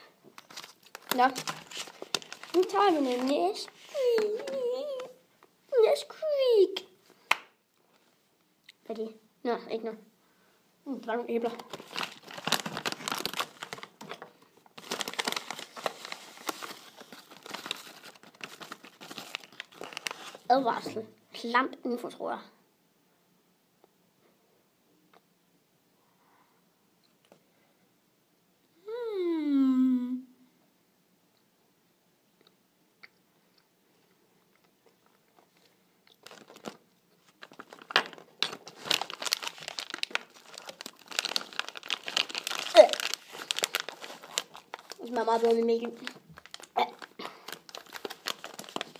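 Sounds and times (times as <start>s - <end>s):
plastic bag crinkling: 0.3s - 5.2s, 11.4s - 20.7s, 35.0s - 48.9s.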